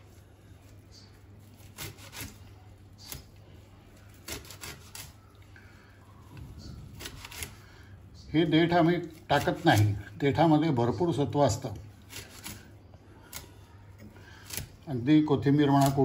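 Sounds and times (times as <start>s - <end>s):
knife cutting leaves: 0.6s - 3.4s, 4.0s - 5.2s, 6.9s - 7.7s, 8.7s - 10.2s, 11.5s - 14.9s, 15.5s - 16.0s.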